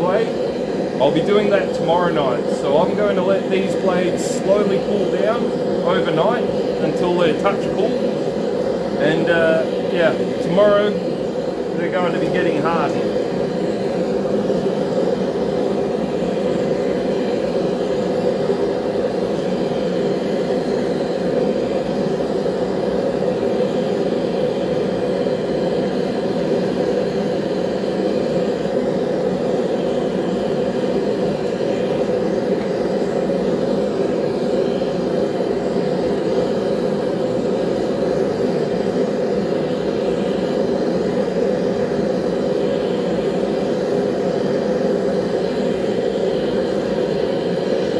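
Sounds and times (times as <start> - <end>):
forge burner flame rushing: 0.0 - 47.9.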